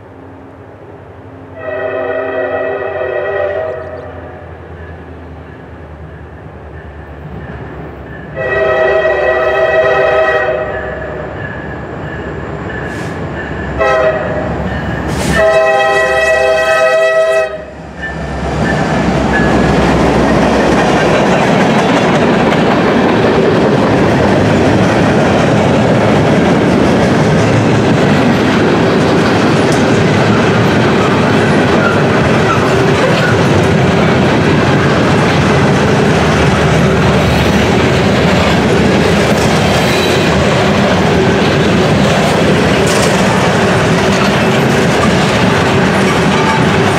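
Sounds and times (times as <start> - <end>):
freight cars rumbling on rails: 0.0 - 46.9
locomotive air horn: 1.6 - 4.4, 8.4 - 11.2, 13.8 - 14.5, 15.1 - 17.8.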